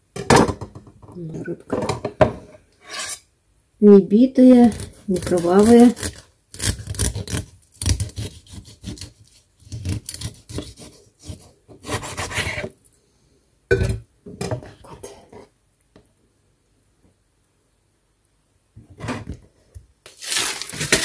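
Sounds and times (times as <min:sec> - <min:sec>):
knife scraping along fish: 0:02.8 - 0:03.3, 0:04.7 - 0:12.7.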